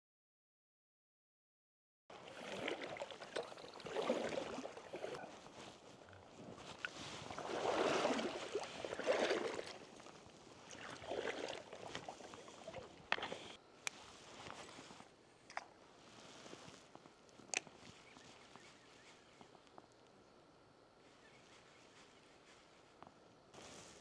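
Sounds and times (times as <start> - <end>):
water sloshing from wading: 2.1 - 13.6.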